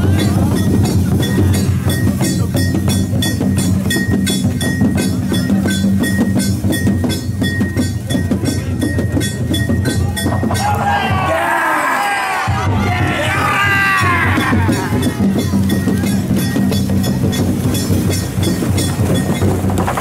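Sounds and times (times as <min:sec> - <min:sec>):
fast ringing percussion strikes: 0:00.0 - 0:11.5, 0:12.5 - 0:20.0
crowd shouting and cheering: 0:09.8 - 0:17.7.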